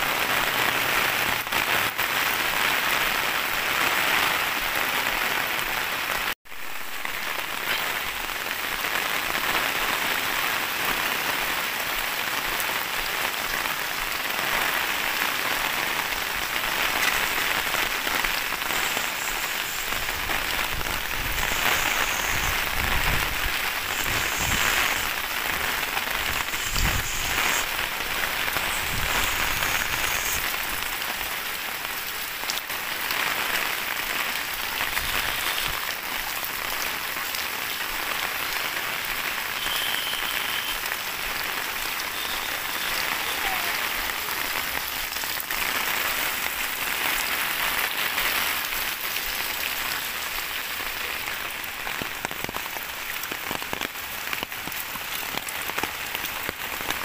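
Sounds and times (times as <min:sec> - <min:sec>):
heavy rain on street: 0:00.0 - 0:57.0.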